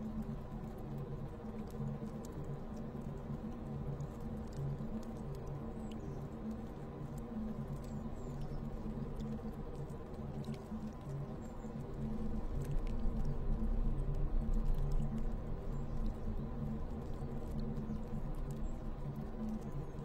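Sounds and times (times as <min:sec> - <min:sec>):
dark ambient drone: 0:00.0 - 0:20.0
faint clicks: 0:00.1 - 0:20.0.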